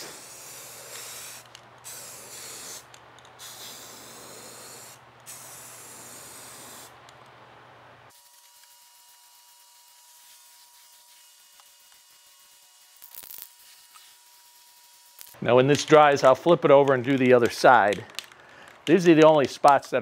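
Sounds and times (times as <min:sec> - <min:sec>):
aerosol spray paint hissing: 0:00.0 - 0:07.0, 0:08.2 - 0:16.1.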